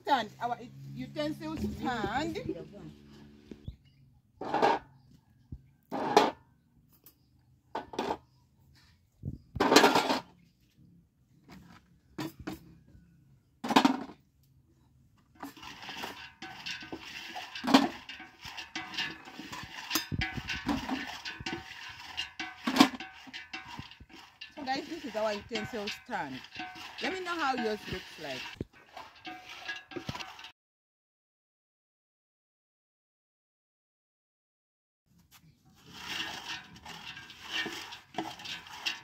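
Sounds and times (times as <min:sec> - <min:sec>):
plastic dishes clattering in metal basin: 0:04.4 - 0:04.9, 0:09.6 - 0:10.4, 0:13.6 - 0:14.2, 0:15.3 - 0:30.5, 0:35.9 - 0:39.0.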